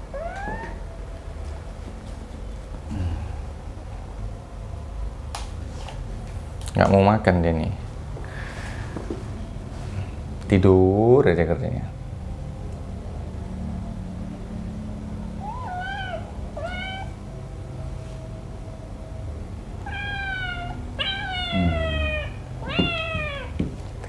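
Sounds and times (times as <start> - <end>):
kitten meowing: 0.1 - 0.8, 15.4 - 17.2, 19.8 - 23.6.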